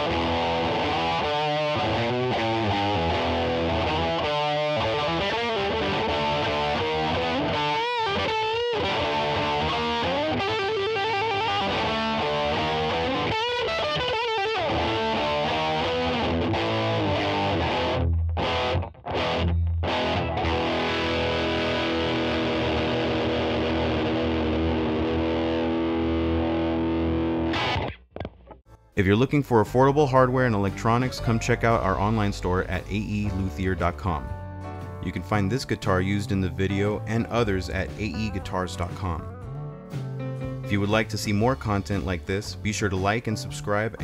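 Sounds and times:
distorted electric guitar: 0:00.0 - 0:28.6.

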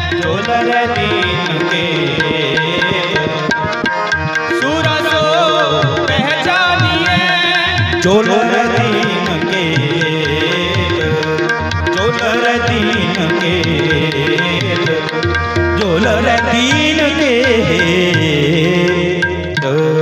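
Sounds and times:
harmonium chords: 0:00.0 - 0:20.0
person singing: 0:00.0 - 0:20.0
tabla strokes: 0:00.0 - 0:20.0.

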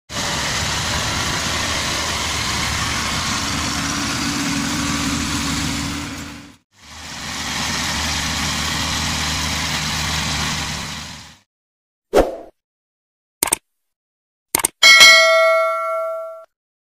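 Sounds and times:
combine harvester running: 0:00.1 - 0:11.4.

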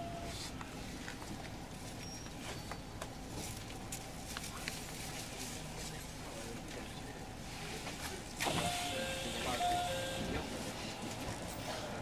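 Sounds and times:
train running gear rumble: 0:09.4 - 0:12.0.

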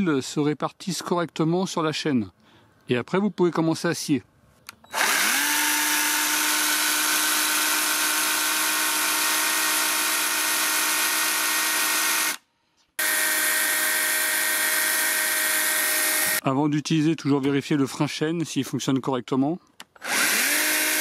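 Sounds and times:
electric chainsaw motor whine: 0:04.9 - 0:12.4, 0:13.0 - 0:16.4, 0:20.0 - 0:21.0.

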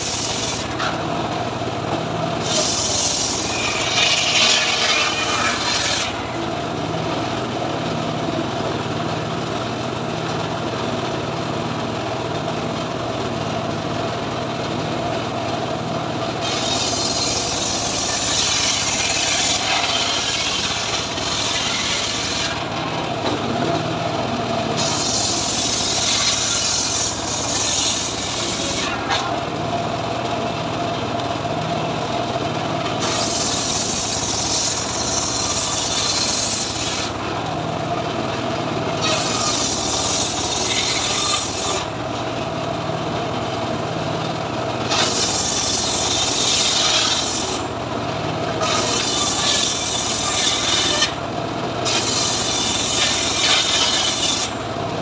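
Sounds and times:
saw blade rasping through wood: 0:00.0 - 0:01.0, 0:02.4 - 0:06.4, 0:16.4 - 0:22.8, 0:24.7 - 0:29.4, 0:33.0 - 0:37.2, 0:39.0 - 0:42.0, 0:44.9 - 0:47.7, 0:48.6 - 0:51.2, 0:51.8 - 0:54.6.

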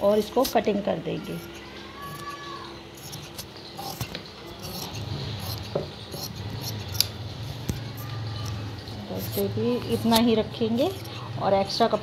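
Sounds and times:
scissors snipping fabric: 0:03.0 - 0:07.8, 0:09.2 - 0:11.2.

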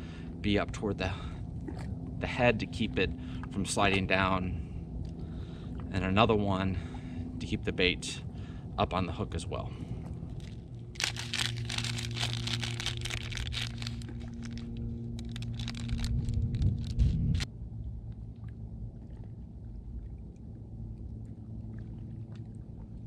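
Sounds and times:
faint low rumble: 0:00.0 - 0:23.0
steady low hum: 0:00.0 - 0:23.0
plastic package crinkling: 0:10.4 - 0:17.5
small handling ticks: 0:10.9 - 0:17.0.

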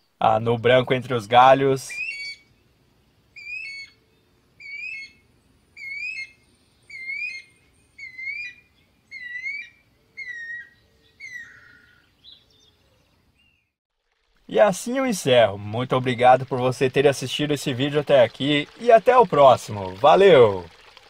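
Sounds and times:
bird whistling wavering notes: 0:01.9 - 0:02.5, 0:03.4 - 0:04.0, 0:04.6 - 0:05.2, 0:05.8 - 0:12.6.

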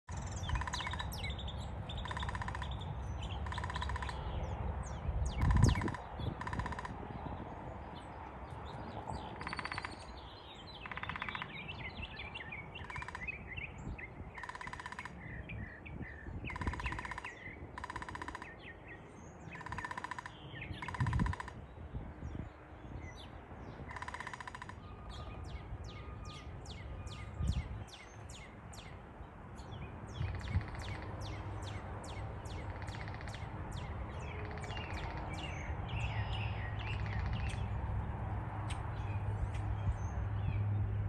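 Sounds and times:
birds chirping: 0:00.0 - 0:37.9
woodpecker drumming on tree: 0:00.1 - 0:01.2, 0:02.0 - 0:02.8, 0:03.4 - 0:04.2, 0:05.4 - 0:07.0, 0:09.4 - 0:10.0, 0:10.8 - 0:11.5, 0:12.8 - 0:13.3, 0:14.4 - 0:15.2, 0:16.5 - 0:18.7, 0:19.5 - 0:21.6, 0:23.9 - 0:24.8, 0:30.2 - 0:31.3, 0:32.6 - 0:33.4.

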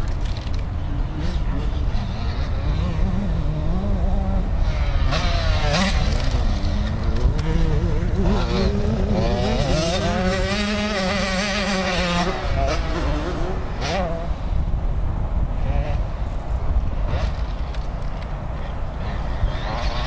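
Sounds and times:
motocross bike engine revving: 0:00.8 - 0:14.6, 0:18.6 - 0:20.0.

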